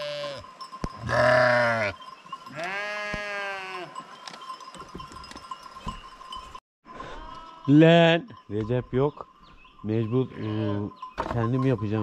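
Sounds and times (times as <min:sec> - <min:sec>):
sheep bleating: 0:00.0 - 0:00.4, 0:01.0 - 0:04.0.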